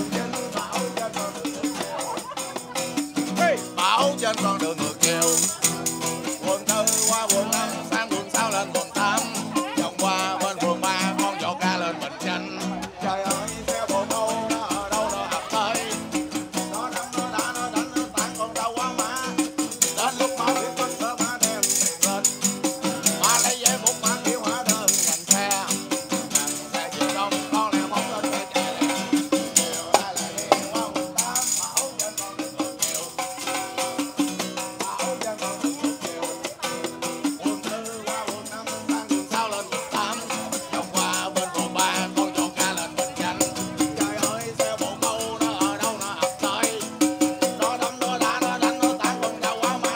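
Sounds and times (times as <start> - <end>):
tambourine jingling: 0.0 - 11.5, 13.2 - 49.9
acoustic guitar strumming: 0.0 - 49.9
man singing: 0.0 - 49.9.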